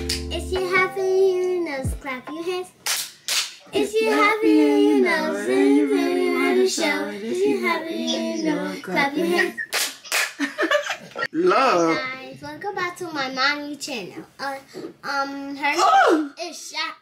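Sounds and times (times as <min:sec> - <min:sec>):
sharp hand claps: 0:02.8 - 0:03.6, 0:09.7 - 0:10.4
children singing: 0:03.8 - 0:09.6.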